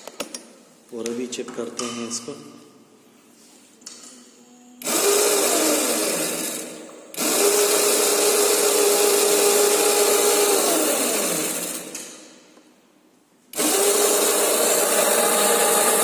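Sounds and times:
electric motor whining: 13.6 - 16.0.

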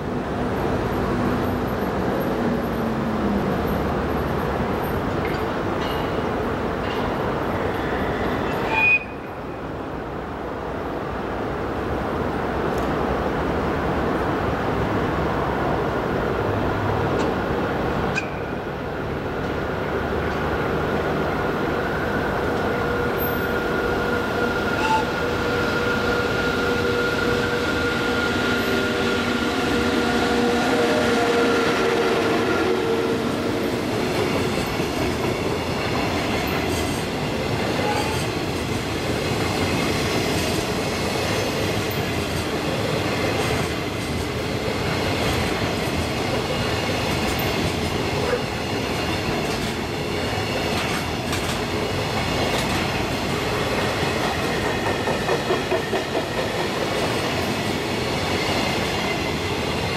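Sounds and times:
train wheels rumbling on rails: 0.0 - 59.9
locomotive whine: 19.8 - 38.6.

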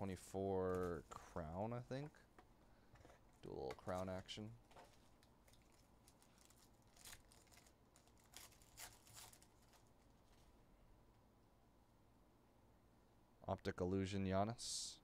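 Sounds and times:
foil wrapper crinkling and tearing: 4.7 - 10.0.

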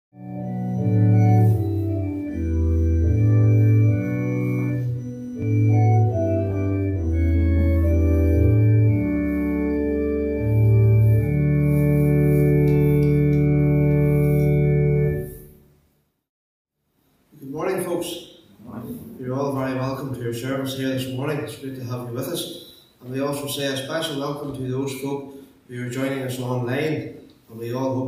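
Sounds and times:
organ playing slow chords: 0.2 - 15.6.

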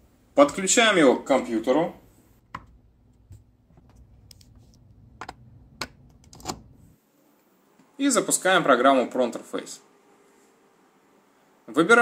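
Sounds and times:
cable plugs clicking into ports: 2.5 - 6.7.

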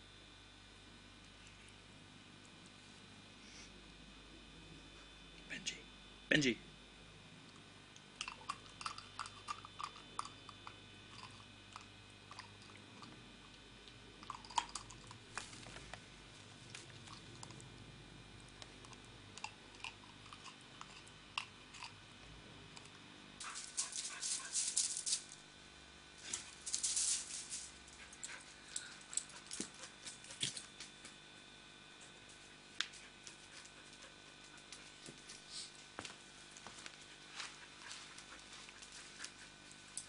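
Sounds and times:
dog gnawing a chew: 7.6 - 22.1
dog moving on loose gravel: 26.3 - 27.8.

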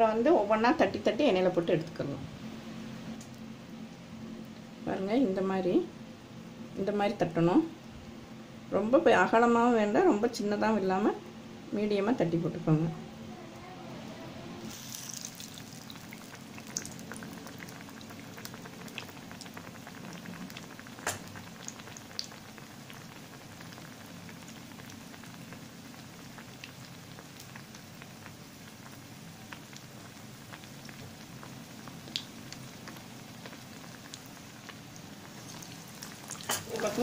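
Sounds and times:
deep-frying sizzle with pops: 14.7 - 37.0.

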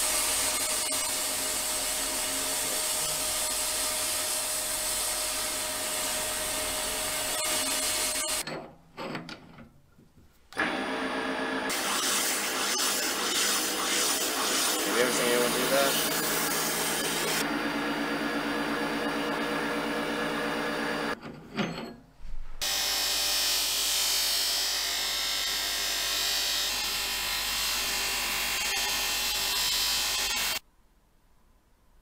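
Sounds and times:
buffing wheel hissing: 11.7 - 17.4.

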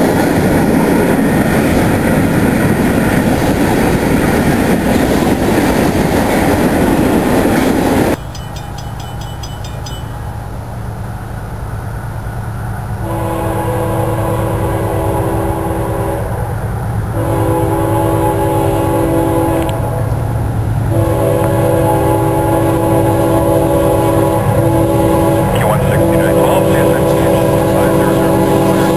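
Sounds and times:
locomotive low rumble: 0.0 - 28.9
locomotive air horn blasts: 13.0 - 16.6, 17.2 - 20.2, 20.9 - 28.9.

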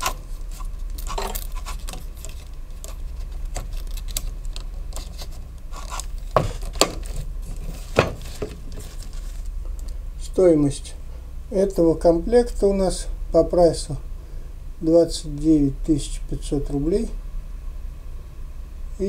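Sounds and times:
leather sheath rustling: 0.0 - 9.6.

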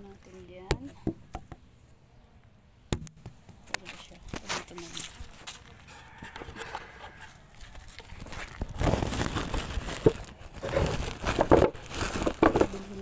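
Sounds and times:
plastic sack rustling: 3.8 - 6.6, 7.2 - 13.0.

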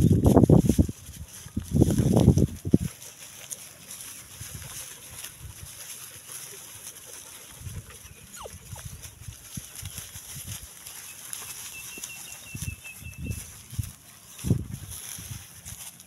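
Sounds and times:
dogs panting: 2.7 - 14.4.

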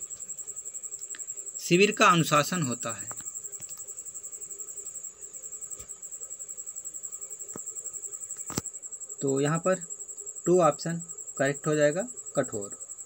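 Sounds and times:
cricket chirping: 0.0 - 13.0
faint clicks: 3.0 - 3.9.

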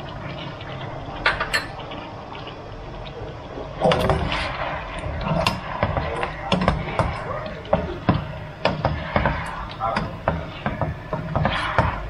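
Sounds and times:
ringing cookware clatter: 1.3 - 1.8.

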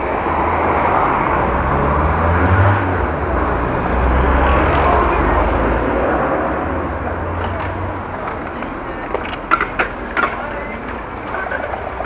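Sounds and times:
rushing wind: 0.0 - 8.8
engine hum: 0.0 - 12.0
road noise with low rumble: 0.0 - 12.0.

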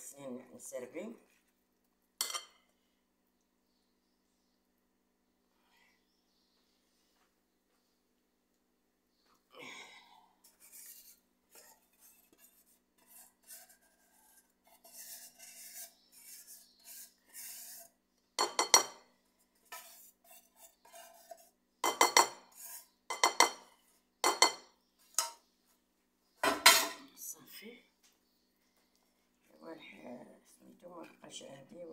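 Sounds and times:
metal spoon stirring in pot: 10.4 - 19.0, 19.6 - 23.6.

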